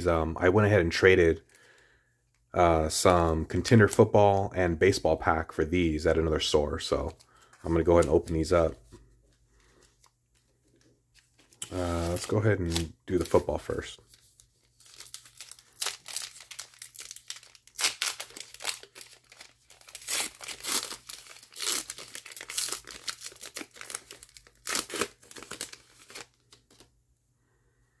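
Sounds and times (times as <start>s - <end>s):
wrapper crinkling and tearing: 11.1s - 26.9s.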